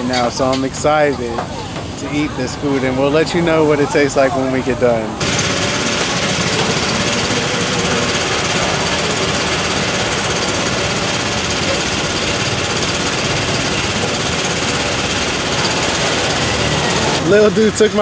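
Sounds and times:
small engine running: 5.1 - 18.0.

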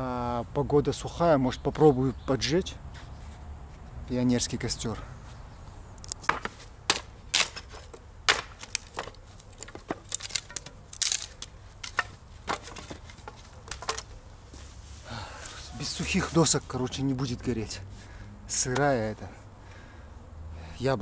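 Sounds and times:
wood knocking and cracking: 6.1 - 14.2.

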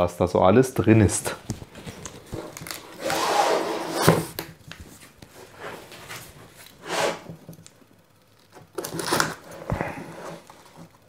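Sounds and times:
cardboard box scraping on table: 2.3 - 4.4, 5.4 - 7.4, 8.9 - 10.9.

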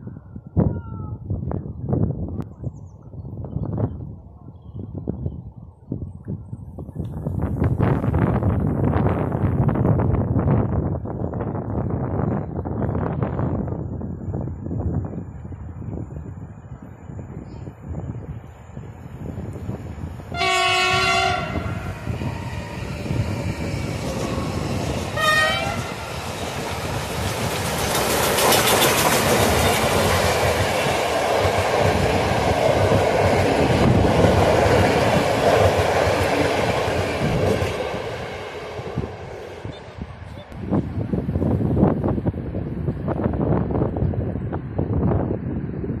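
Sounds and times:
steam locomotive whistle: 20.3 - 22.9, 25.2 - 26.0
wheels clacking on rails: 21.4 - 40.6.

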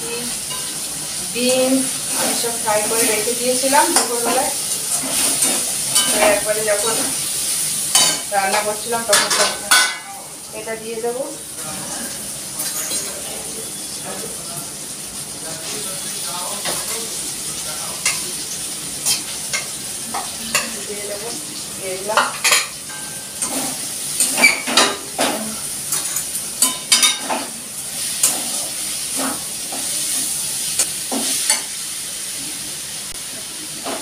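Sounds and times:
vegetables sizzling in oil: 0.0 - 34.0
metal spatula scraping pan: 2.0 - 7.2.

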